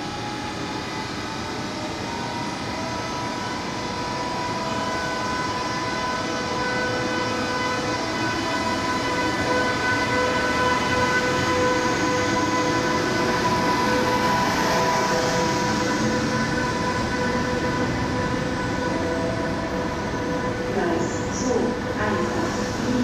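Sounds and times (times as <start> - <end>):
electric locomotive whining: 0.0 - 23.0.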